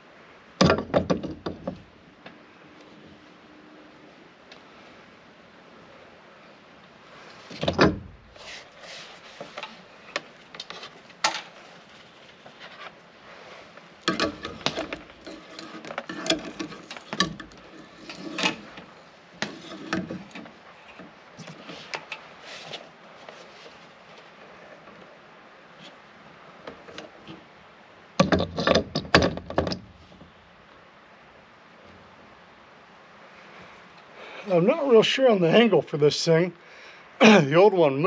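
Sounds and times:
hardware knocks and clatter: 0.6s - 1.9s, 14.1s - 18.8s, 28.2s - 29.9s.

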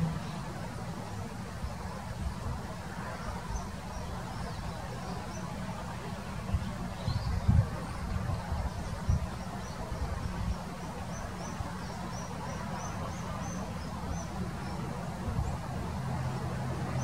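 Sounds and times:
nestlings peeping: 6.5s - 15.7s.

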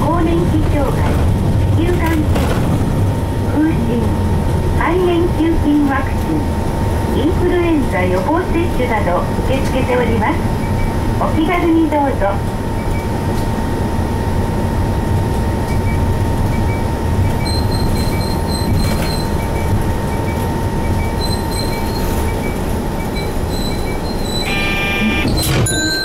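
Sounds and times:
road noise: 0.0s - 11.2s
bus diesel engine rumble: 0.0s - 26.0s
electronic tone: 20.2s - 26.0s.

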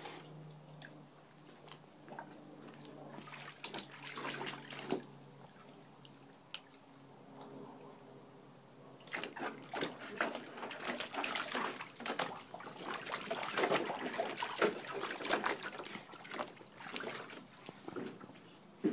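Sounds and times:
dog splashing water in pool: 2.0s - 5.8s, 9.0s - 18.4s.

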